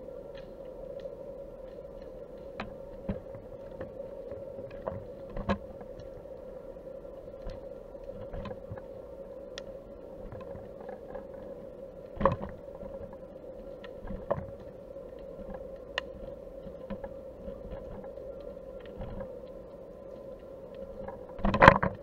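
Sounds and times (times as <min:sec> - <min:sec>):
low underwater hum: 0:00.0 - 0:22.0
underwater clicks and knocks: 0:04.6 - 0:06.1, 0:07.4 - 0:08.9, 0:12.2 - 0:13.2, 0:15.4 - 0:18.2, 0:21.0 - 0:22.0.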